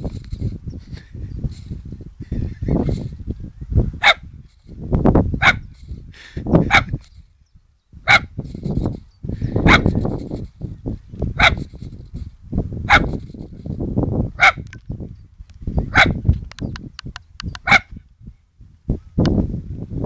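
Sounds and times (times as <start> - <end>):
dog barking: 4.0 - 4.2, 5.4 - 5.7, 6.7 - 7.0, 8.1 - 8.4, 9.6 - 9.9, 11.4 - 11.7, 12.9 - 13.2, 14.4 - 14.6, 15.9 - 16.2, 17.6 - 17.9.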